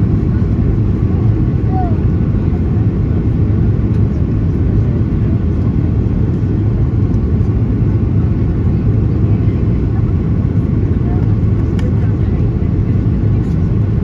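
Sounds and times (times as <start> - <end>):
airliner cabin rumble: 0.0 - 14.0.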